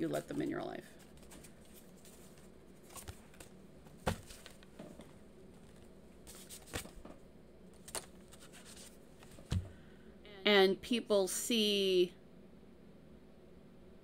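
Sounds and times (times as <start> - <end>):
cards tapping and flicking: 5.7 - 7.1, 7.8 - 9.7.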